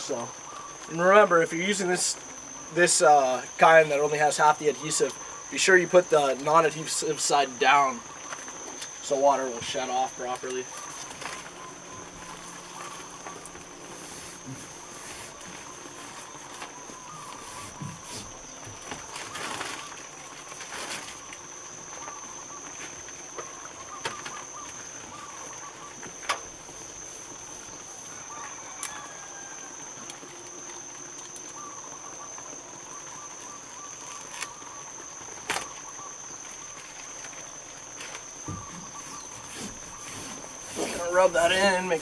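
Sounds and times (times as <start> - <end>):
high-pitched insect drone: 0.0 - 42.0
insect chirps: 0.0 - 42.0.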